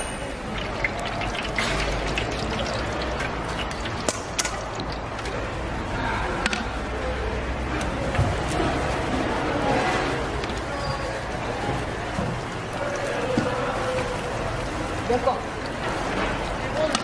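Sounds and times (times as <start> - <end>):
hot oil frying hiss: 0.0 - 5.9, 9.7 - 17.0.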